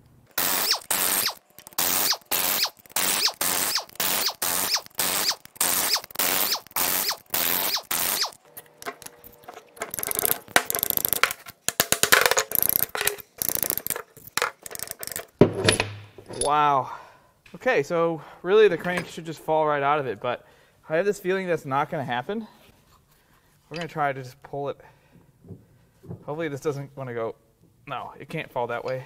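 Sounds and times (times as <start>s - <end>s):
ratchet clicking: 0.4s - 8.4s, 9.9s - 11.3s, 12.4s - 15.3s
metal parts clinking: 0.4s - 16.6s.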